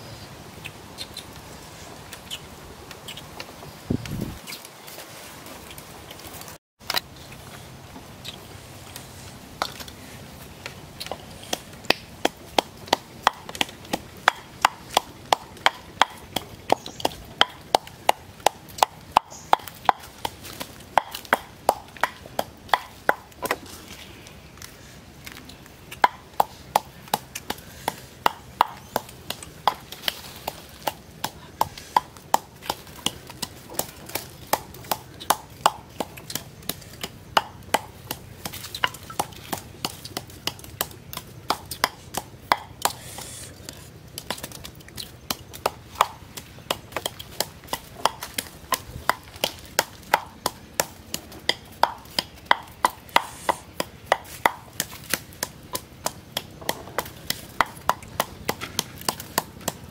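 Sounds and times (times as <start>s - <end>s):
wooden pestle pounding in clay mortar: 11.0s - 23.6s, 25.9s - 43.2s, 44.1s - 59.9s.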